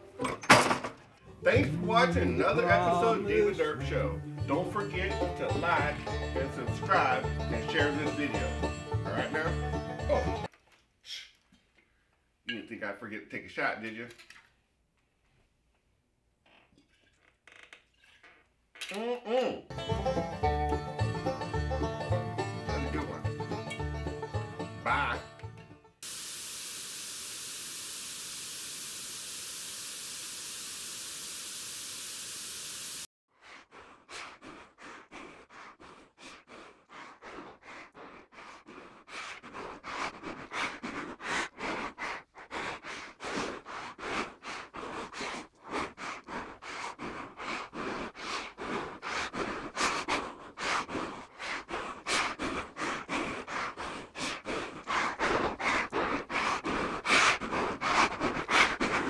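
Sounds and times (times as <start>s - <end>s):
television static hiss: 26.1s - 33.0s
man panting: 33.4s - 59.0s.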